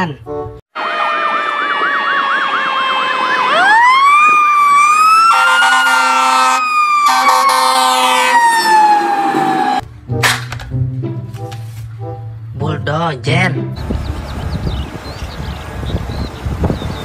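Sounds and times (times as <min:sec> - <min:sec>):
fire engine siren wailing: 0:00.7 - 0:09.8
long horn blasts: 0:05.2 - 0:08.6.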